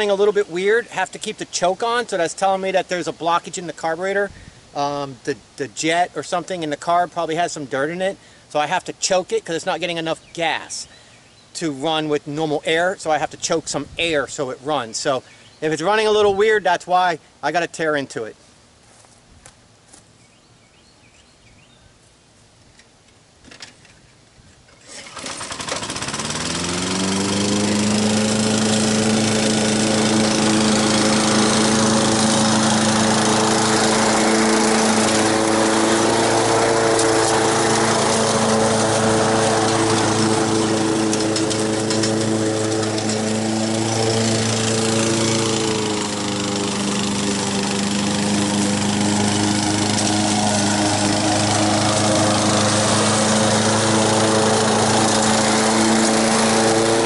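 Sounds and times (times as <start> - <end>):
lawn mower engine running: 24.8 - 57.0.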